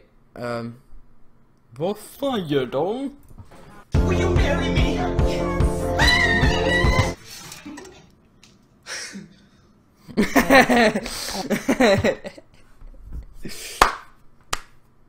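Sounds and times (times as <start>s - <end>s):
background music: 3.9s - 7.2s.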